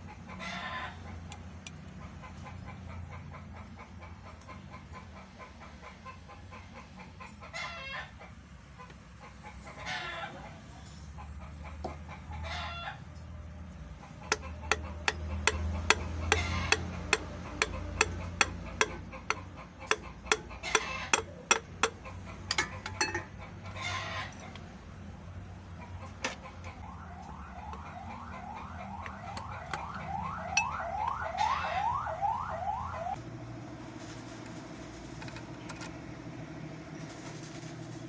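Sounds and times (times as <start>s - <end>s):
chickens clucking and crowing: 0.0s - 33.2s
metal taps and clicks: 14.2s - 23.4s, 29.0s - 31.2s.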